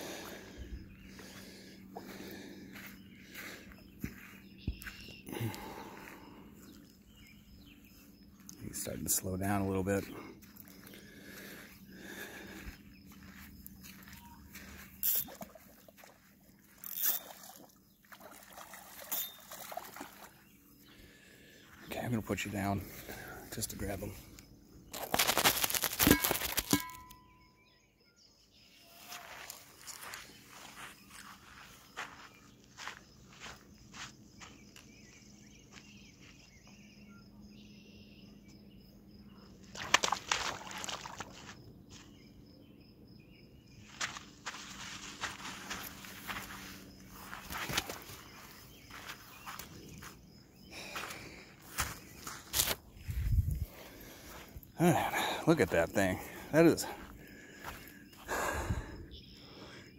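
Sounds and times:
faint insects chirping: 0:00.0 - 0:59.9
fish thrashing and splashing: 0:15.1 - 0:20.4, 0:39.7 - 0:41.5.

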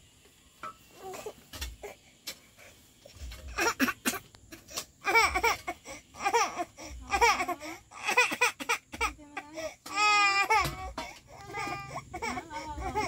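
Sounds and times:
child laughing and babbling: 0:05.0 - 0:13.0.

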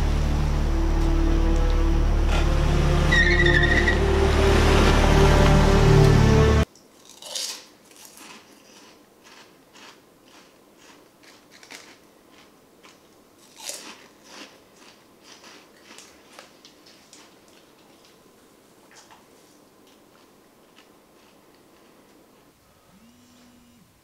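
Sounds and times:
loud music: 0:00.0 - 0:06.7.

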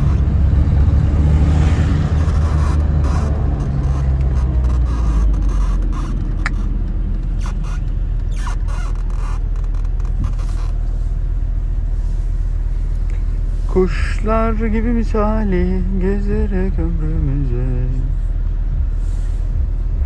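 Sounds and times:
car engine through loud exhaust: 0:00.0 - 0:20.0.

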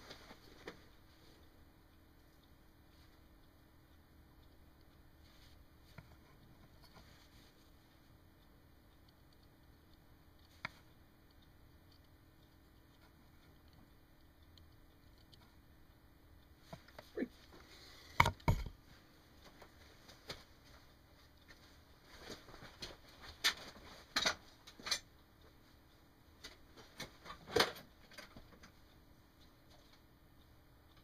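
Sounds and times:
light clicks and taps: 0:00.1 - 0:18.8
soldering iron knocking on bench: 0:18.2 - 0:18.7.

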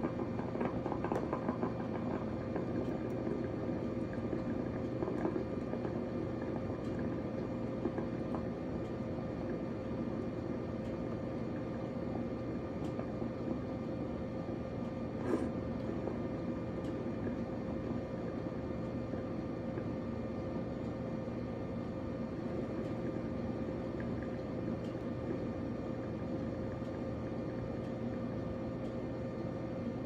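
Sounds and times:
coffee maker water bubbling: 0:00.0 - 0:30.0
steady hum: 0:00.0 - 0:30.0.

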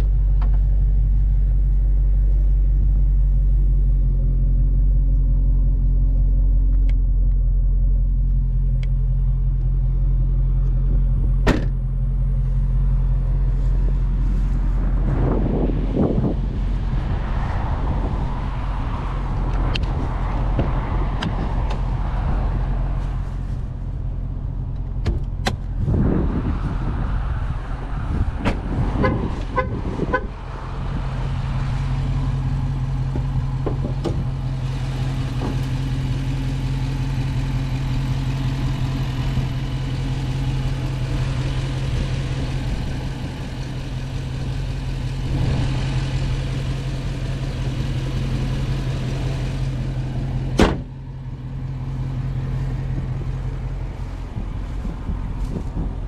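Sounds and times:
car engine idling: 0:00.0 - 0:26.0, 0:26.7 - 0:56.0
sharp clicks and knocks: 0:24.7 - 0:25.7, 0:33.1 - 0:34.2.

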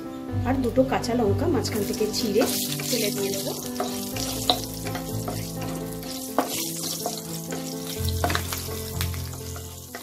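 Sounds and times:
spices sizzling in oil: 0:01.5 - 0:10.0
spatula knocking against pan: 0:03.7 - 0:08.5.

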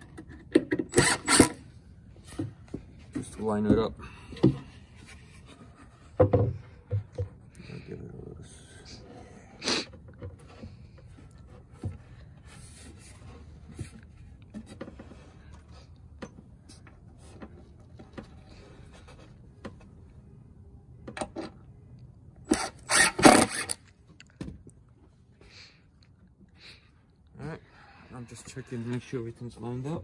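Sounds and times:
wood rubbing and tapping: 0:02.3 - 0:07.4.

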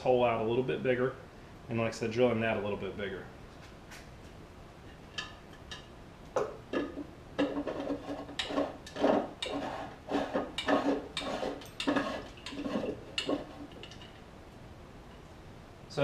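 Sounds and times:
plastic clicks knocks and scrapes: 0:06.4 - 0:14.1.

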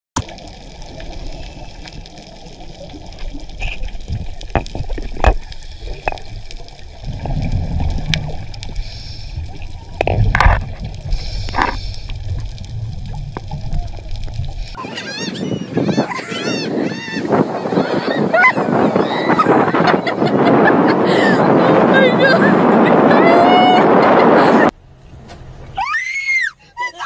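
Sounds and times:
underwater rumble: 0:00.2 - 0:14.8
underwater clicks and knocks: 0:03.2 - 0:08.7, 0:09.9 - 0:14.6.

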